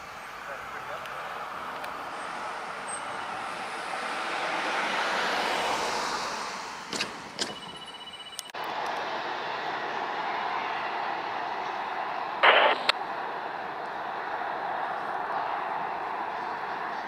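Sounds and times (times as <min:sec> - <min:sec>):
vehicle passing by: 0:00.0 - 0:07.4, 0:08.6 - 0:12.4
sharp clicks: 0:12.4 - 0:13.0.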